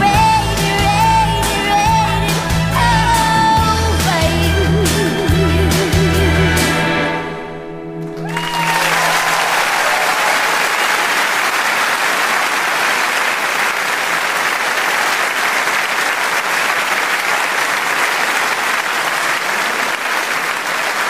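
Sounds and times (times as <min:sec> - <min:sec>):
audience applauding: 0:08.0 - 0:21.0.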